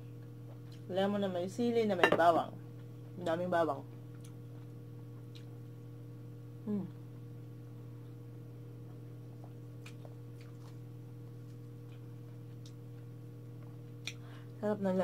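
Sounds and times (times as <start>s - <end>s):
electrical mains hum: 0.0s - 15.0s
faint eating clicks: 3.9s - 5.6s
person humming mm: 6.6s - 7.0s.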